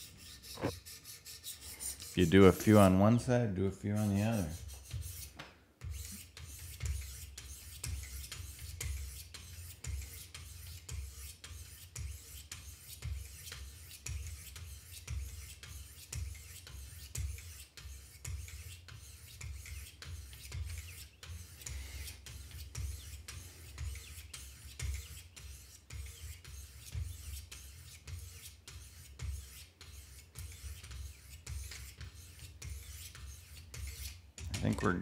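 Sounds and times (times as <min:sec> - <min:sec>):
sharpening stones rasping on knife: 0:00.0 - 0:02.4, 0:05.9 - 0:34.2.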